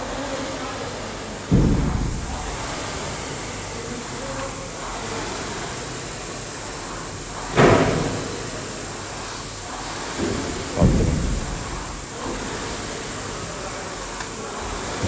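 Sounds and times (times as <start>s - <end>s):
rowing machine fan whooshing: 0.0s - 15.0s
heavy thump: 1.5s - 3.3s, 10.3s - 12.4s.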